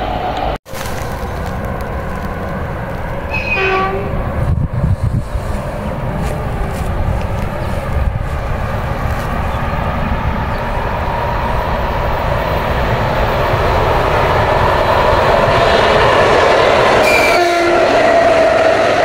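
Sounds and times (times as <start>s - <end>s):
electric train rumble and whine: 0.0s - 19.0s.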